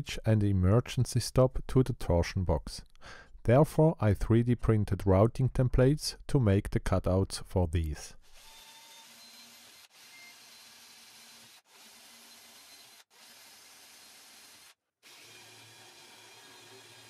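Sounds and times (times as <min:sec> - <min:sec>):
cordless drill boring into plywood: 0:08.4 - 0:17.0.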